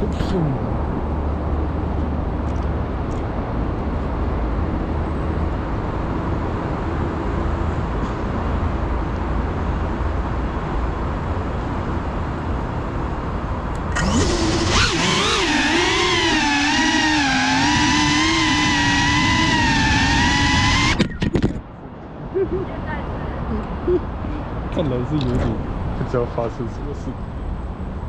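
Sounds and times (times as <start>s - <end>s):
road traffic rumble: 0.0s - 28.0s
wavering pitched sound: 14.0s - 21.0s.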